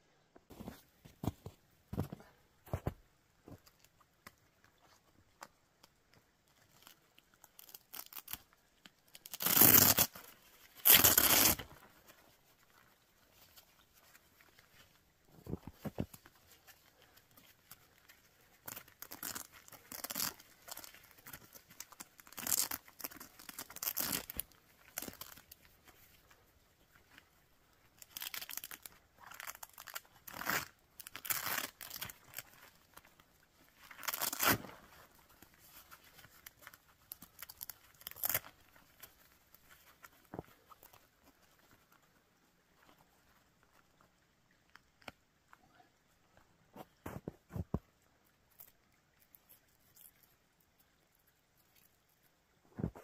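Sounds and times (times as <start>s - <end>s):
tent fabric rustling and crinkling: 0.5s - 4.0s, 6.4s - 44.3s.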